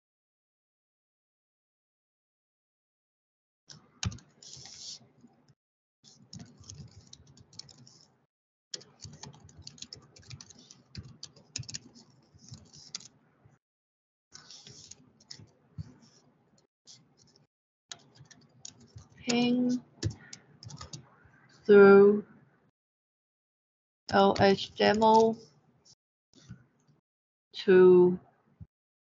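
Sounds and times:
computer keyboard typing: 3.7s - 5.0s, 6.1s - 8.1s, 8.8s - 13.1s, 17.9s - 21.0s.

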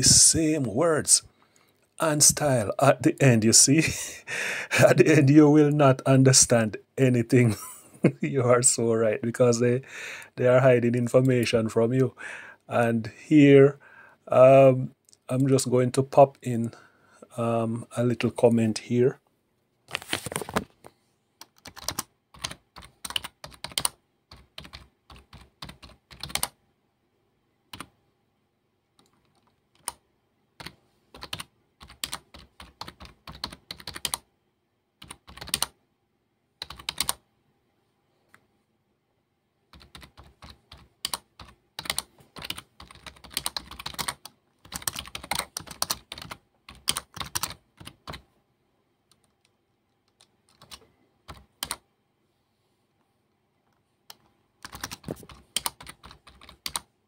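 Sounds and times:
typing on computer keyboard: 21.4s - 26.6s, 27.7s - 27.9s, 29.0s - 30.0s, 30.6s - 34.2s, 35.0s - 35.8s, 36.6s - 37.2s, 39.7s - 48.2s, 49.1s - 51.8s, 54.1s - 56.9s.

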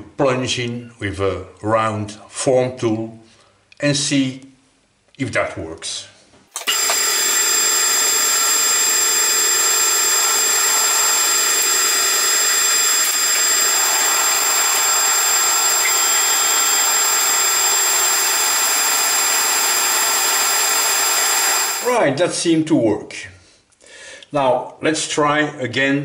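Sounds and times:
high gear whine: 6.6s - 22.0s
metal lathe running: 6.6s - 22.0s
tool cutting spinning steel: 6.6s - 22.0s.

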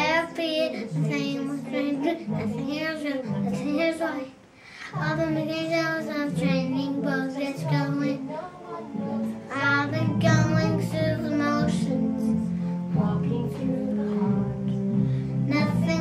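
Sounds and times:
child singing in a gruff voice: 0.0s - 16.0s
instrumental backing track: 4.9s - 16.0s.

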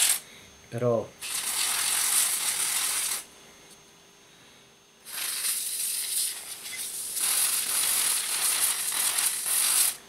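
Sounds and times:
rough high hiss: 5.0s - 10.0s.

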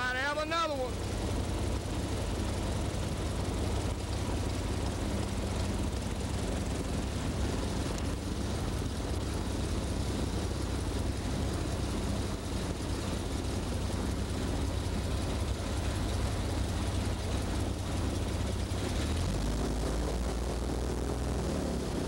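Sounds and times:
boat motor running: 0.0s - 22.0s.

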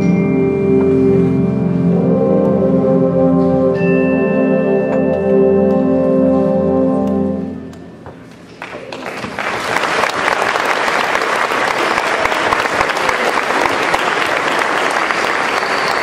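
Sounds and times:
audience applauding: 8.6s - 16.0s.

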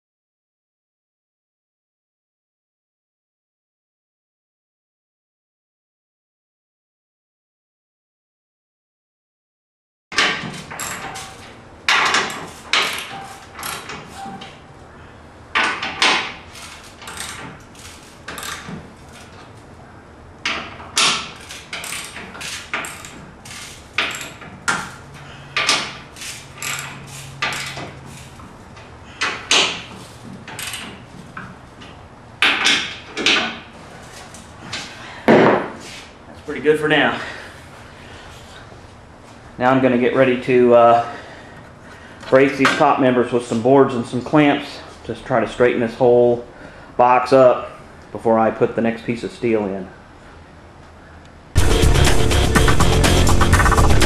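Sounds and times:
metal clanks and knocks: 10.2s - 14.5s, 15.5s - 19.5s, 20.4s - 33.7s.

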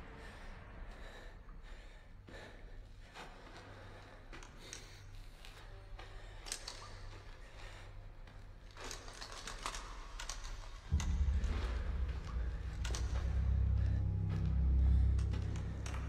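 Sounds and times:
footsteps on rocky cave floor: 0.2s - 16.0s
loud low drone: 10.9s - 16.0s.

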